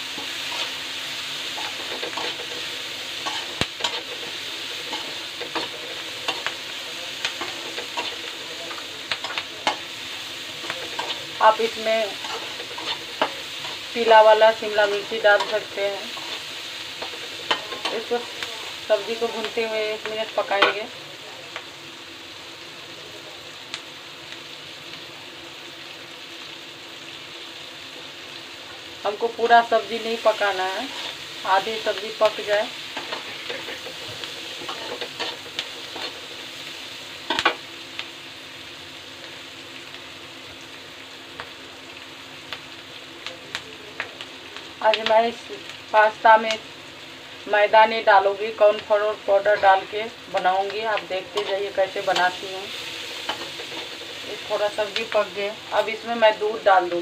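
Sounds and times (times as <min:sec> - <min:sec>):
vegetables sizzling in oil: 0:00.0 - 0:57.0
metal spatula scraping pan: 0:12.1 - 0:13.9.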